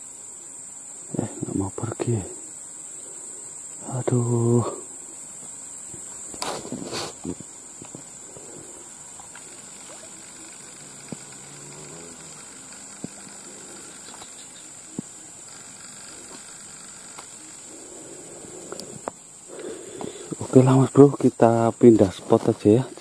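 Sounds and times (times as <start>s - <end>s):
steady high-pitched hiss: 0.0s - 23.0s
faint clicks: 7.4s - 17.6s, 18.6s - 20.1s.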